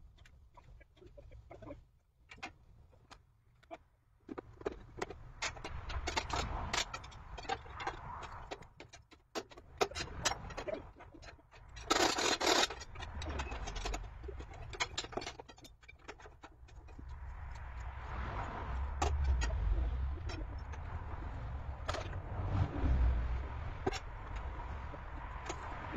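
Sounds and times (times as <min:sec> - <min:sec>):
wind rumble on microphone: 0:16.8 - 0:25.9.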